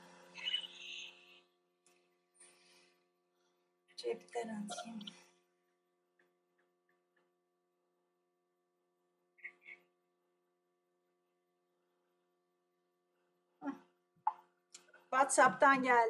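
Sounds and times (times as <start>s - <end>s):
person speaking: 4.0s - 5.2s.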